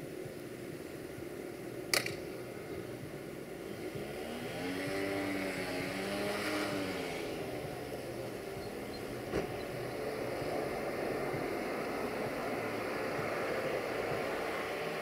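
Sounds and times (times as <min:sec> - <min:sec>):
distant engine running: 0:00.6 - 0:15.0
sharp click: 0:01.9 - 0:02.2.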